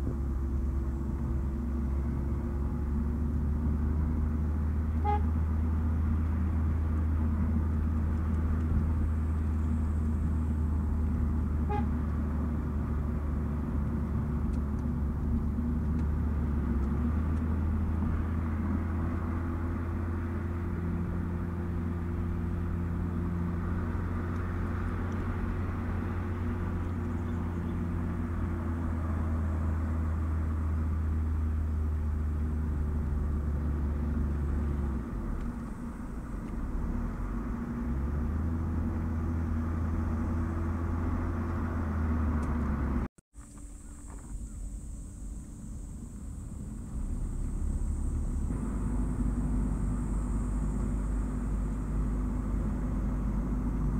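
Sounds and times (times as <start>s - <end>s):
car tyres and drivetrain drone: 0.0s - 53.9s
faint hum: 43.4s - 52.6s.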